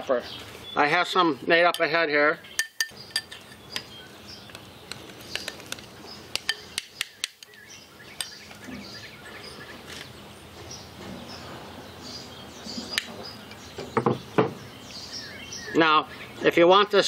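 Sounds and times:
faint birds chirping: 0.0 - 17.0
utensil clinking against a bowl: 1.6 - 3.9, 6.3 - 7.6.

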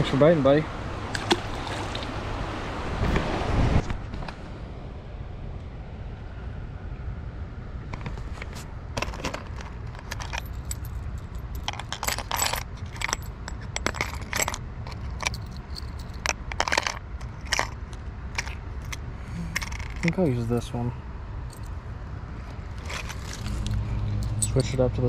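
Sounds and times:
low steady rumble: 0.0 - 25.0
metal lures clinking in plastic box: 9.0 - 20.4, 22.7 - 24.8.

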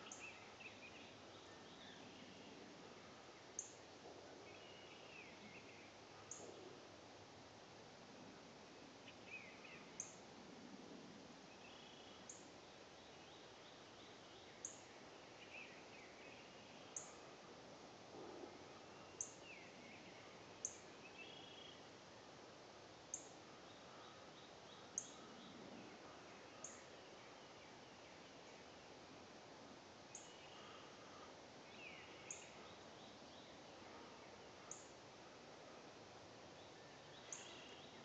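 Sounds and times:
distant bird calls: 23.1 - 28.8, 30.1 - 35.0.

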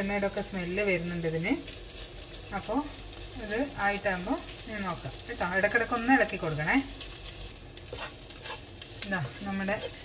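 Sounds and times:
vegetables sizzling in a pan: 0.0 - 10.0
wooden spatula stirring: 6.8 - 10.0.

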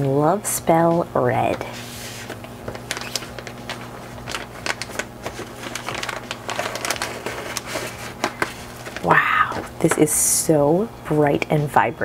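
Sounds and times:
plastic bag crinkling: 2.2 - 9.8.

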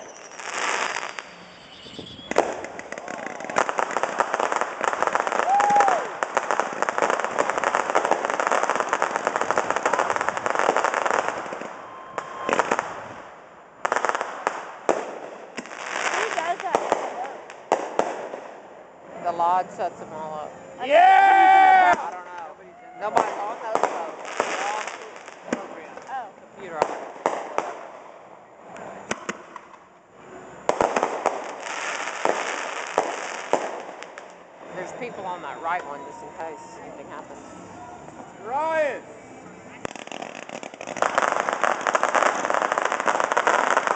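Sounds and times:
fireworks shells bursting: 0.0 - 5.3
sharp firework bursts: 0.0 - 19.4, 23.0 - 28.2, 30.6 - 35.2, 39.7 - 43.9
fireworks crackling and popping: 0.0 - 43.9.

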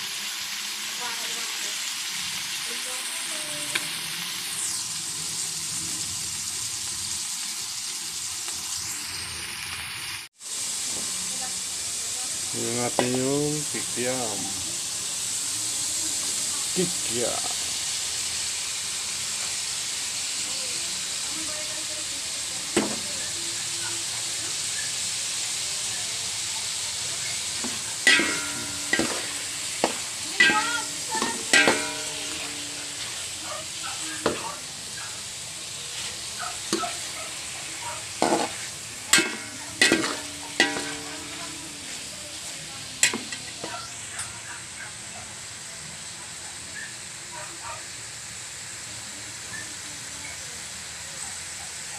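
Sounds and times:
food sizzling in a wok: 0.0 - 51.9
metal ladle clanging on pan: 22.8 - 23.1, 27.6 - 34.7, 38.1 - 42.0, 43.0 - 44.3.

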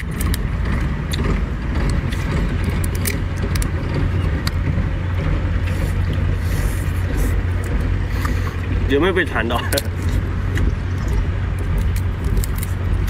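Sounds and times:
low engine rumble: 0.0 - 13.0
crayfish shell cracking: 1.9 - 3.8, 9.7 - 13.0.

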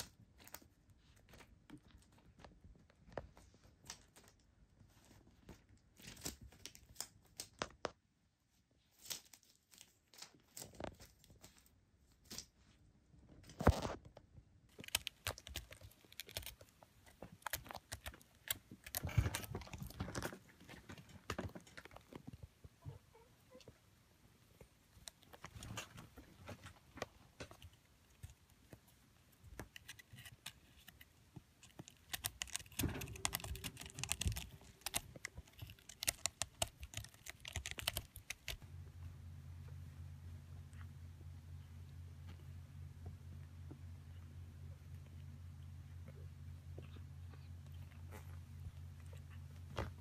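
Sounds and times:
kitten rustling a toy: 14.7 - 23.8, 24.4 - 38.9.

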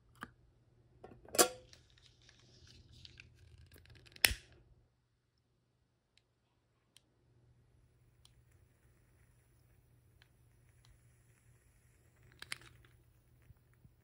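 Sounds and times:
soft lighter hiss: 7.9 - 14.0.

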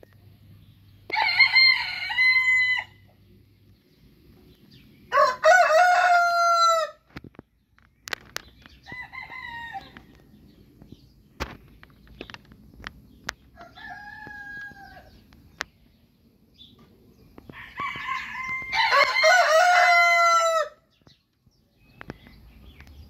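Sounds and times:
roosters crowing: 1.1 - 3.2, 5.0 - 7.3, 8.6 - 10.6, 13.3 - 15.4, 17.4 - 21.0.

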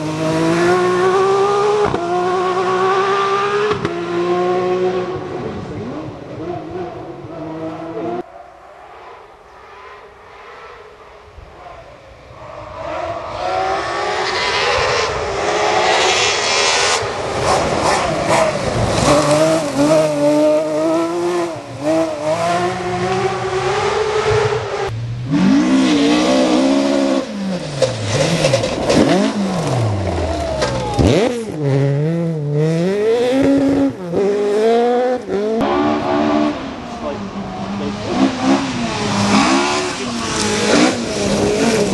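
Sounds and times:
rally car engines revving: 0.0 - 41.9.

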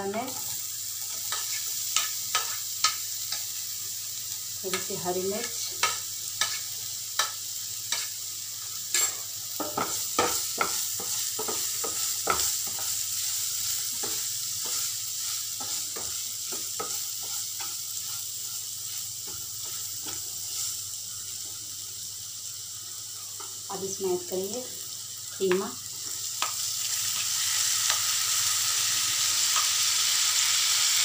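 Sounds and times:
vegetables sizzling in oil: 0.0 - 31.0.

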